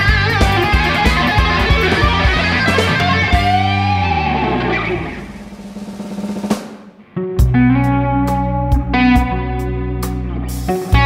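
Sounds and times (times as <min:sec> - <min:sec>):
bass guitar: 0:00.0 - 0:05.7, 0:07.0 - 0:11.0
overdriven electric guitar lead: 0:00.0 - 0:06.0, 0:06.9 - 0:11.0
drums: 0:00.0 - 0:11.0.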